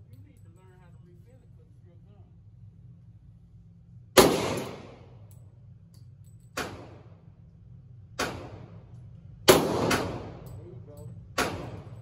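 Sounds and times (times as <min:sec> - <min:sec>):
handgun shots ringing indoors: 0:04.2 - 0:07.2, 0:08.2 - 0:10.6, 0:11.4 - 0:12.0.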